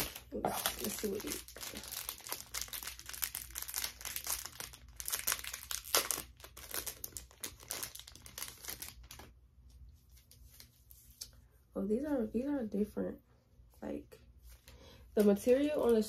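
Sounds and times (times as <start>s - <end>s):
plastic wrapper crinkling: 0.0s - 9.4s.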